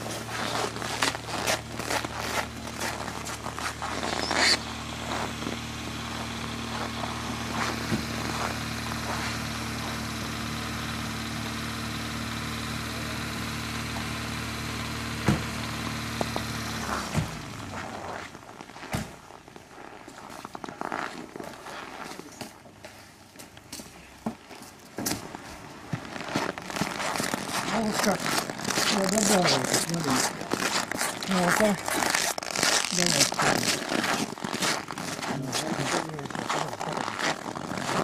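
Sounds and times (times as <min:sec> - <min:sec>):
vehicle engine idling: 0:00.0 - 0:21.0, 0:21.6 - 0:38.0
sharp clicks or crunches: 0:26.0 - 0:38.0.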